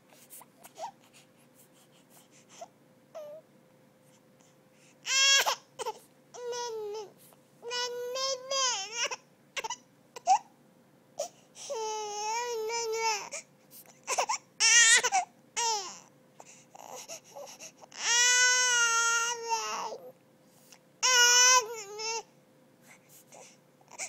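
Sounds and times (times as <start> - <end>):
baby crying: 5.0 - 10.4, 11.2 - 13.4, 16.8 - 20.1, 21.0 - 22.3.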